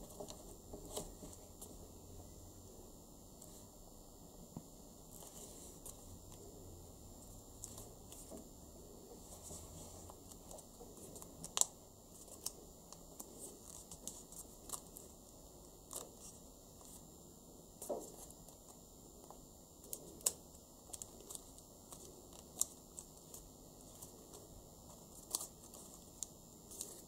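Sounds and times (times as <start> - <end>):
paper rustling and crinkling: 0.0 - 1.7, 9.1 - 15.1, 17.8 - 27.0.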